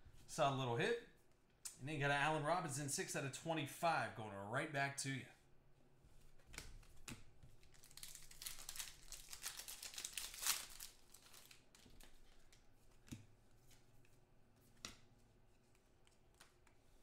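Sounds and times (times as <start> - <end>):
plastic wrapper tearing and crinkling: 7.6 - 12.4.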